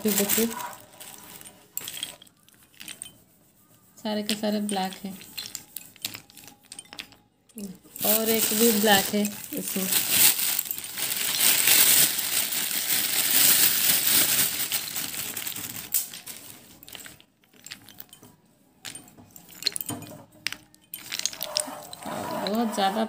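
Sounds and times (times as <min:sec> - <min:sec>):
slate pieces clattering: 0:00.0 - 0:03.1, 0:04.9 - 0:07.2, 0:16.8 - 0:18.2, 0:18.8 - 0:22.1.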